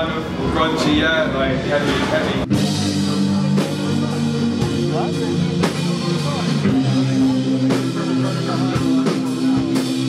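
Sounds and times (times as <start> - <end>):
rock band playing: 0.0 - 10.0
drum and cymbal hits: 1.6 - 10.0
droning guitar chords: 2.5 - 10.0.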